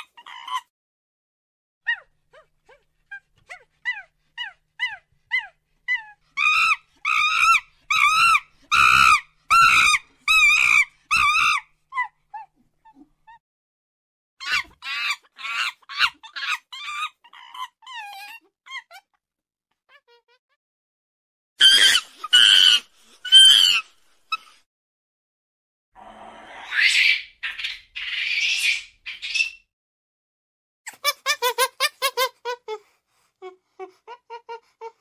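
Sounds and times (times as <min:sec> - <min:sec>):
monkey yelps and screeches: 0:00.0 - 0:00.7, 0:01.9 - 0:13.4, 0:14.4 - 0:19.1, 0:21.6 - 0:24.6, 0:26.6 - 0:29.7.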